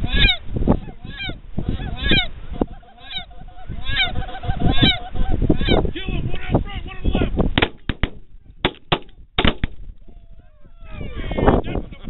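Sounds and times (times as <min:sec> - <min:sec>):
goose honking: 0:00.0 - 0:05.9
rapid shotgun blasts: 0:07.6 - 0:09.8.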